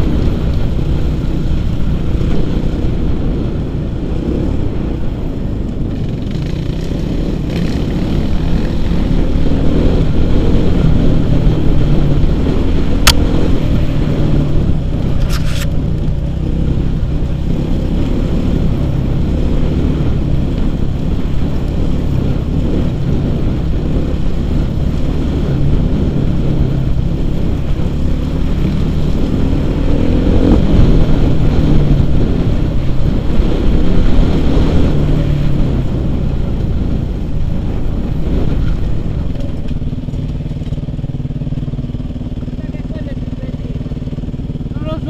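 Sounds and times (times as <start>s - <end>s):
dirt bike engine revving: 6.0s - 14.8s, 16.4s - 36.2s.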